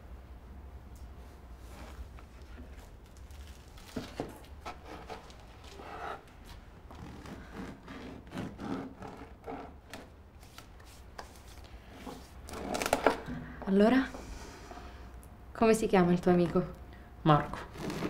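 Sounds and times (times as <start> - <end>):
knife sawing bread: 7.0 - 9.8, 17.7 - 18.0.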